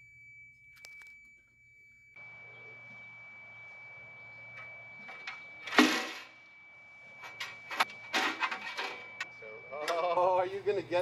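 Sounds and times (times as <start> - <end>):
faint high-pitched tone: 0.0 - 11.0
metal clanks and knocks: 7.3 - 9.2.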